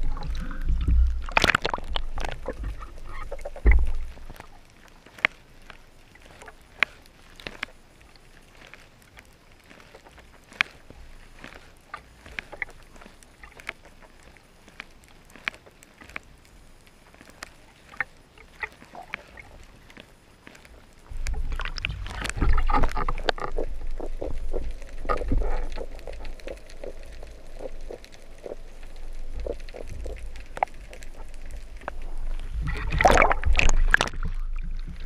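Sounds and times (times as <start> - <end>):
low rumble: 0.0 - 4.3, 21.1 - 35.0
water rushing and bubbling: 0.0 - 8.9, 21.1 - 35.0
rapid crackling: 0.0 - 35.0
sharp clicks underwater: 0.0 - 35.0.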